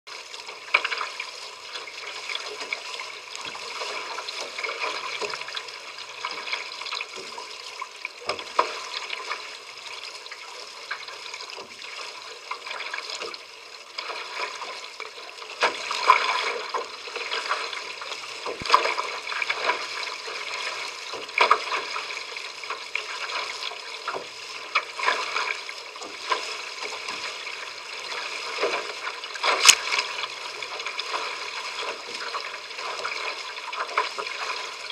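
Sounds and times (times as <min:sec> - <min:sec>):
water rushing along hull: 0:00.1 - 0:34.9
sharp water splashes: 0:28.1 - 0:34.9.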